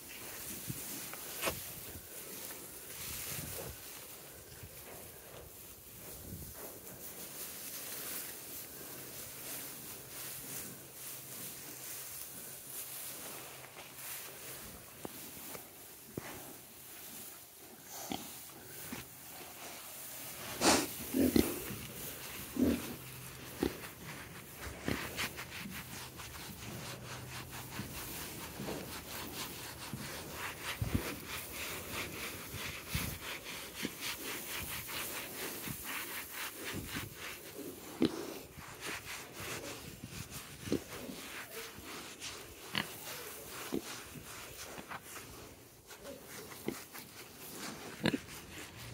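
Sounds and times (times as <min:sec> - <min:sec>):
gloved hand scratching bristly coat: 0:05.1 - 0:48.9
pig grunts: 0:20.6 - 0:21.8, 0:22.5 - 0:23.8.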